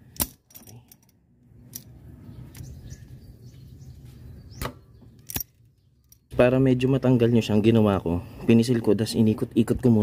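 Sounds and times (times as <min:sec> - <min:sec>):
faint bird chirps: 0:01.9 - 0:07.6.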